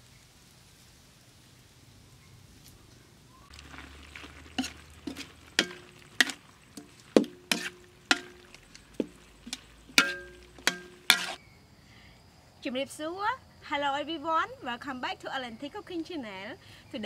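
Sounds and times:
metal utensil clanking on wok: 0:03.6 - 0:11.4.

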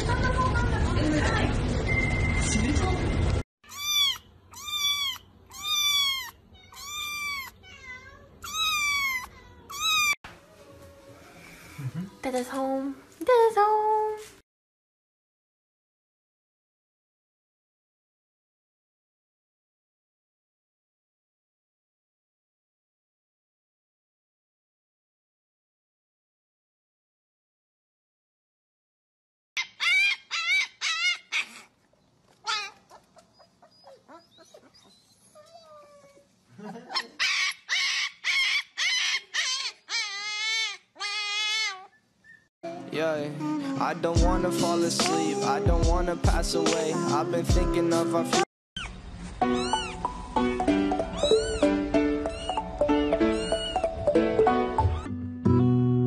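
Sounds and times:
kitten meowing: 0:03.6 - 0:10.2, 0:37.4 - 0:42.0, 0:48.8 - 0:54.0
puppy crying in high yelps: 0:03.6 - 0:10.2, 0:29.6 - 0:31.8, 0:32.4 - 0:42.5, 0:48.8 - 0:54.0, 0:54.8 - 0:55.2.

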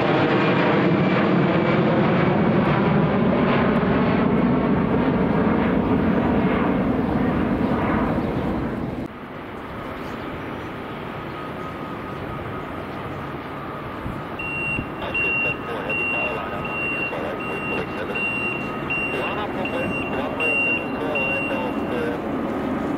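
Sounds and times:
jet airliner engine noise: 0:00.0 - 0:22.9
vehicle reversing beeps: 0:14.3 - 0:22.2.

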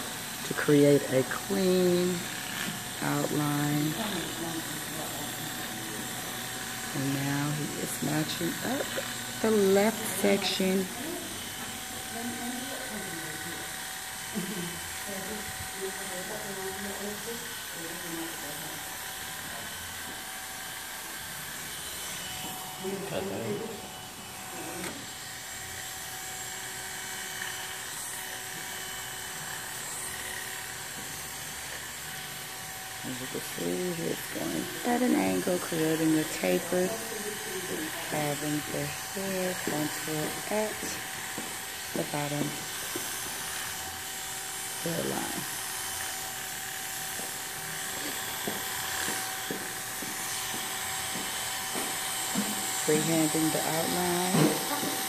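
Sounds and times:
electric hair clippers buzzing: 0:00.0 - 0:55.0.

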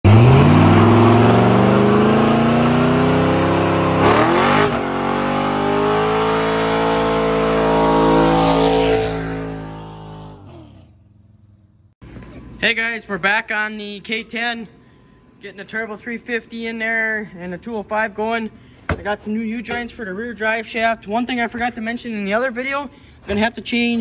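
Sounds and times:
tires spinning on pavement: 0:00.0 - 0:11.0
engine revving hard: 0:00.0 - 0:11.1.

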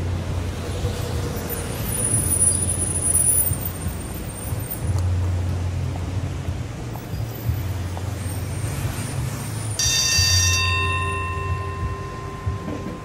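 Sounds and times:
heavy vehicle engine rumble: 0:00.0 - 0:13.0
ringing tone: 0:09.8 - 0:13.0.

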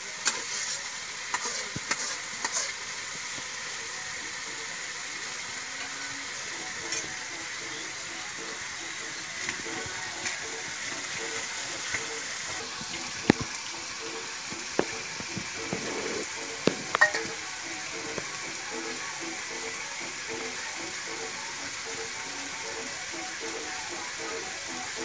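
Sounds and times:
eggs sizzling in hot oil: 0:00.0 - 0:25.0
steel bowls knocking: 0:09.0 - 0:18.3.

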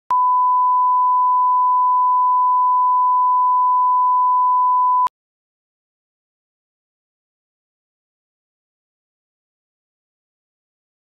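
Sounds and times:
sine test tone: 0:00.1 - 0:05.1.

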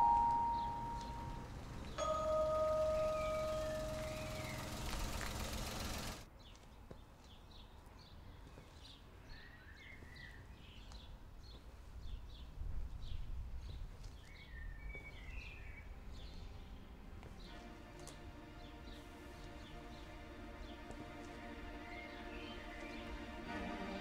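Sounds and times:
chime-like tone: 0:00.0 - 0:04.4
small birds chirping: 0:00.0 - 0:23.4
outdoor ambience: 0:00.0 - 0:24.0.

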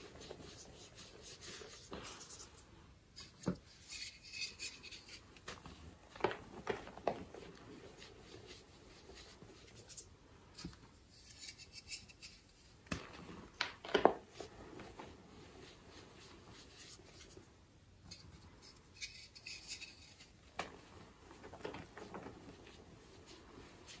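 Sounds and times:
rubbing of chalk powder: 0:00.0 - 0:02.6.

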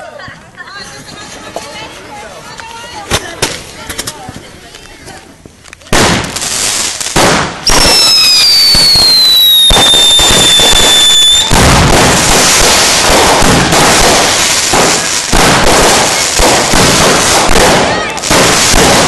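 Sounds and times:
firework crackle and pops: 0:00.9 - 0:19.0
firework whistle falling in pitch: 0:07.7 - 0:11.5.

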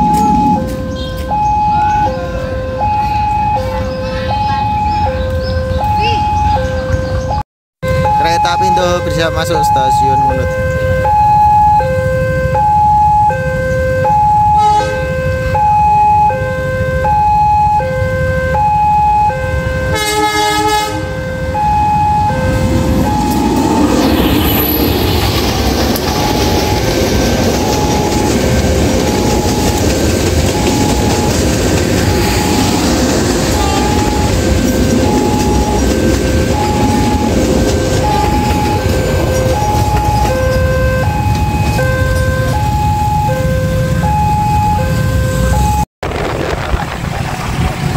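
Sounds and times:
level crossing alarm two-tone chime: 0:00.0 - 0:07.4, 0:30.5 - 0:37.4, 0:38.0 - 0:45.8
locomotive horn blast: 0:13.4 - 0:17.2, 0:17.8 - 0:24.8, 0:32.0 - 0:45.7
train wheels rumbling on rails: 0:21.6 - 0:47.9.

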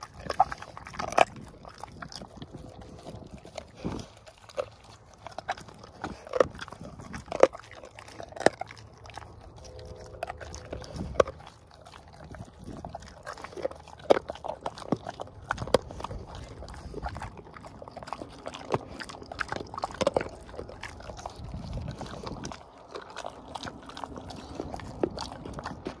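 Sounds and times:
dog crunching a treat: 0:00.0 - 0:26.0
wet chewing: 0:00.0 - 0:26.0.

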